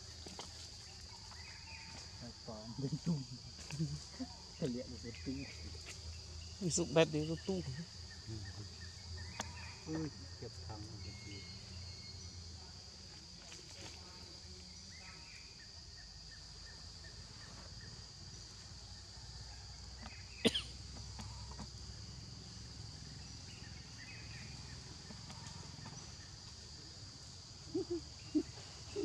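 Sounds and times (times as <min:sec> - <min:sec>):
high-pitched insect drone: 0:00.0 - 0:12.5.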